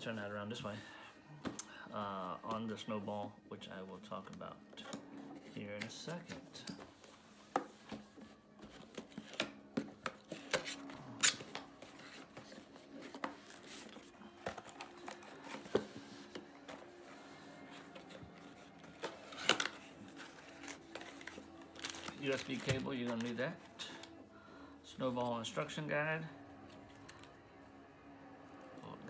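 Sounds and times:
cardboard packaging handled: 4.7s - 24.2s.

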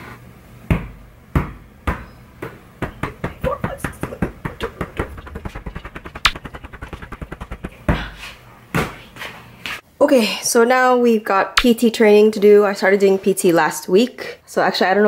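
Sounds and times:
volleyball thudding off forearms: 0.7s - 9.1s.

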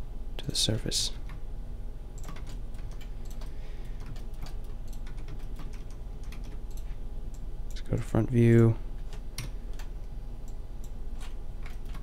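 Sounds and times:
steady low hum: 0.0s - 12.0s
keyboard keys clicking: 2.2s - 6.9s.

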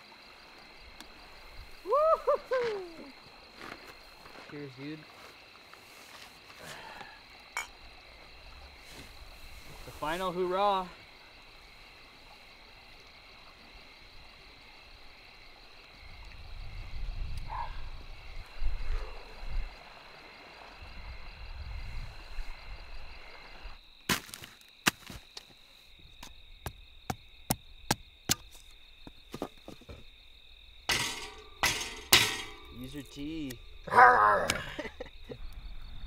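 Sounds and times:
firewood being split by hand: 24.1s - 25.2s
night chorus of calling creatures: 31.0s - 35.2s.

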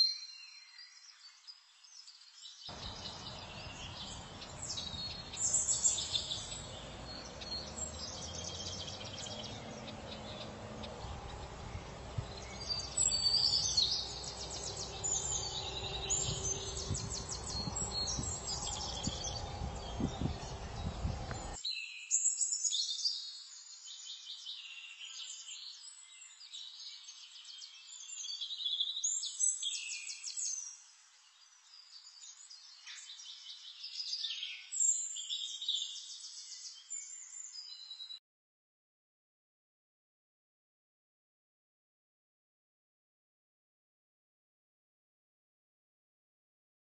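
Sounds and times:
birds chirping and singing: 0.0s - 38.2s
low rumbling background noise: 6.5s - 21.6s.

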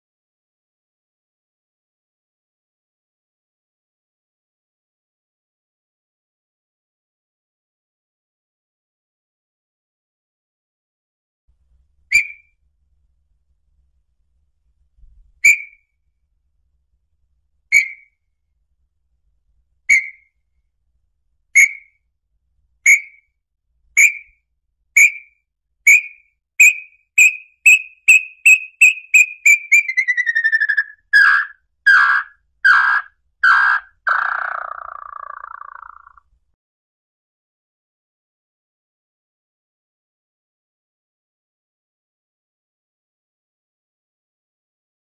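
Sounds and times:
bird whistled song: 12.1s - 12.6s, 15.4s - 15.9s, 17.7s - 18.2s, 19.9s - 20.4s, 21.6s - 22.0s, 22.8s - 23.3s, 24.0s - 24.4s, 25.0s - 36.2s.

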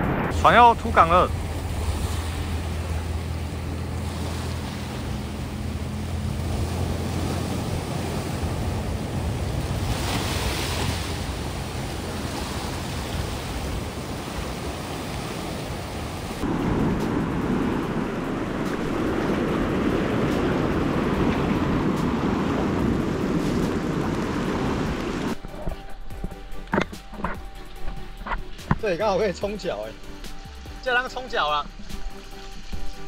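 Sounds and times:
low steady hum: 0.0s - 10.4s
sea waves breaking on rocks: 0.0s - 25.5s.

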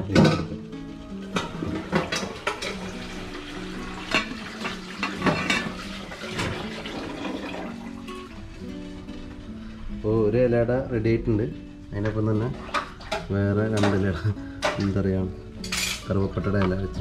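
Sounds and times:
metal pot lid clinking: 1.3s - 7.0s, 15.6s - 16.1s.

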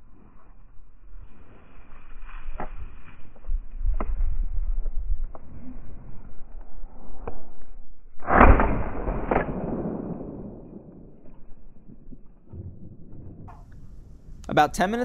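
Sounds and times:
shotgun blasts: 8.2s - 11.4s.

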